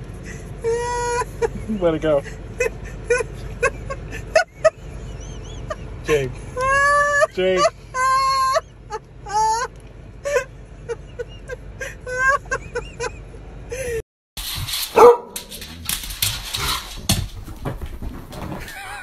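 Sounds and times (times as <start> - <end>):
dog sharp cry: 14.4 - 17.0
dog scuffling and knocking: 14.4 - 19.0.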